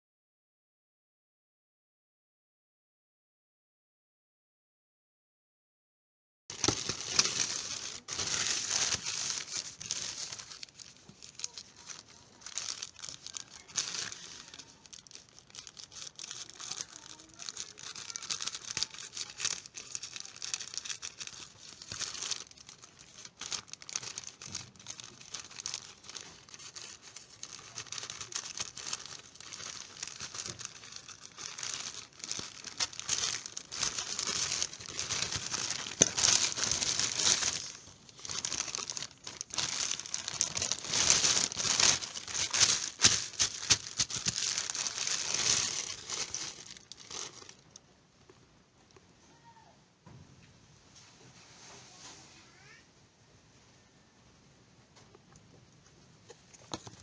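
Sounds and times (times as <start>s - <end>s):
plastic pouch crinkling: 6.5s - 47.8s, 56.5s - 57.0s.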